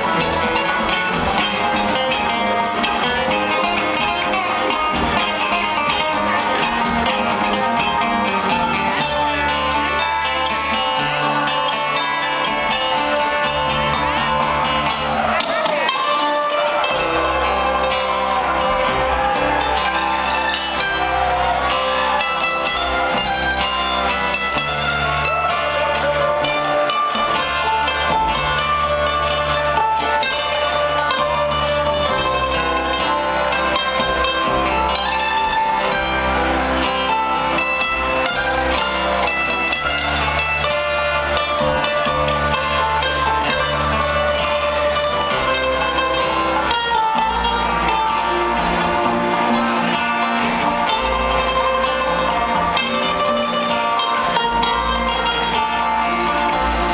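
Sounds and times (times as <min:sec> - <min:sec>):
acoustic guitar: 0:00.0 - 0:56.9
banjo: 0:00.0 - 0:56.9
mandolin: 0:00.0 - 0:56.9
upright bass: 0:00.0 - 0:56.9.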